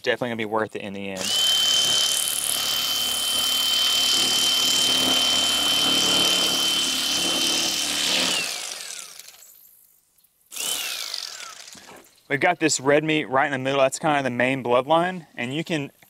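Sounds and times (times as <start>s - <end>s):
electric knife high whine: 1.2s - 9.5s.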